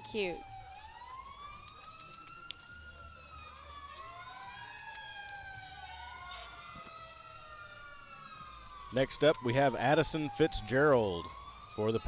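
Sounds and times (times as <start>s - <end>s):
emergency sirens wailing: 0.0s - 12.0s.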